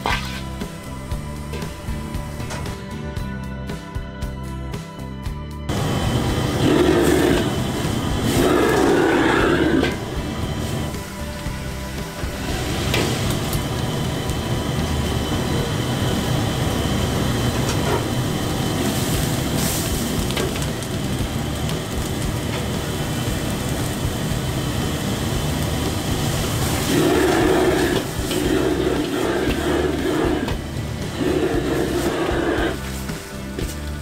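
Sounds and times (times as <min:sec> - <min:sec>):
gas burner rumbling: 0:00.0 - 0:04.4, 0:05.7 - 0:34.0
food sizzling in a wok: 0:05.7 - 0:34.0.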